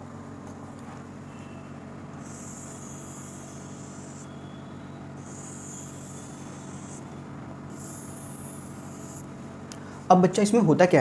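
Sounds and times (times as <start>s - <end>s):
steady low hum: 0.0s - 11.0s
marker rubbing across a board: 2.2s - 4.3s, 5.2s - 9.3s.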